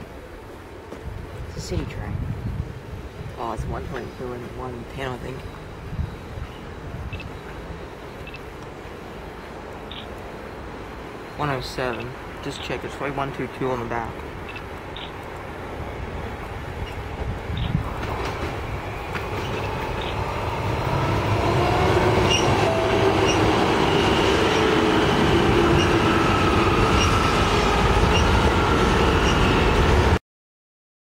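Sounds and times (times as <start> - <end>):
electric train running past: 2.7 - 30.2
wheels clicking over rails: 17.6 - 29.5.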